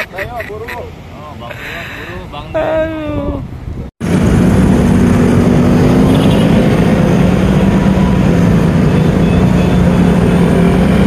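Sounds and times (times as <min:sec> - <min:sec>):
road and air noise: 0:00.0 - 0:11.0
motorcycle engine: 0:04.0 - 0:11.0.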